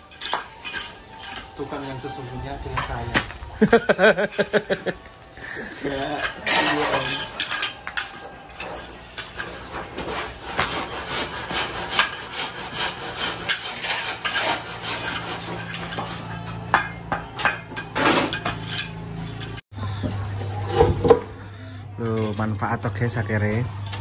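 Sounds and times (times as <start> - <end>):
tools scraping and knocking: 0.0 - 5.0, 5.8 - 19.6.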